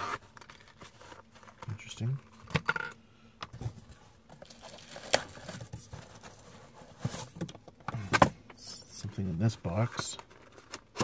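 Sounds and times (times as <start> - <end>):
cardboard rustling: 3.6 - 7.5.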